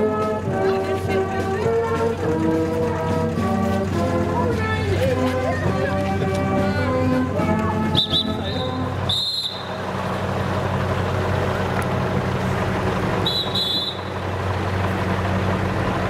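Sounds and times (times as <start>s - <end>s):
engine running with low hum: 0.0s - 16.0s
street noise: 0.0s - 16.0s
high squeals: 8.0s - 10.0s, 13.1s - 14.3s.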